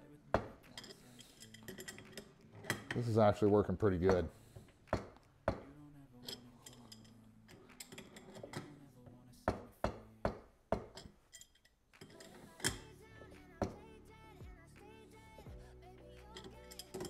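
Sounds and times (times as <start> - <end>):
soft background music: 0.0 - 17.0
wrench clinking on metal: 0.4 - 3.2, 6.2 - 8.8, 9.5 - 13.8, 16.3 - 17.0.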